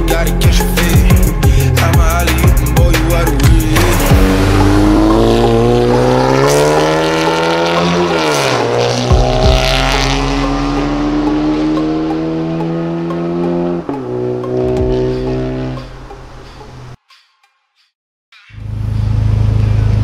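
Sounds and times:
car engine accelerating past: 0:03.8 - 0:15.8.

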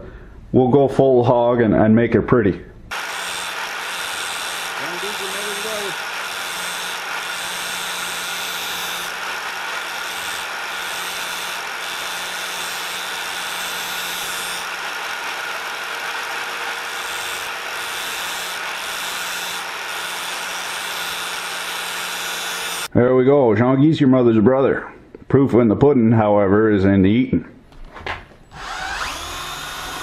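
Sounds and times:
angle grinder running: 0:02.9 - 0:22.9, 0:28.5 - 0:30.0
drill bit grinding hiss: 0:02.9 - 0:22.9, 0:28.6 - 0:30.0.

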